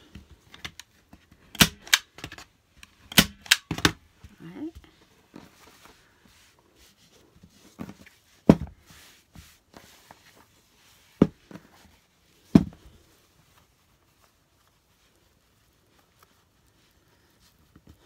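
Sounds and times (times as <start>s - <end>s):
staple gun snapping: 1.6s - 2.4s, 3.1s - 3.9s.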